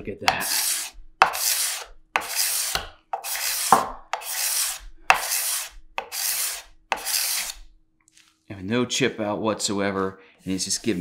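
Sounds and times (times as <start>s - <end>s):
card scraper scraping wood: 0.3s - 7.7s.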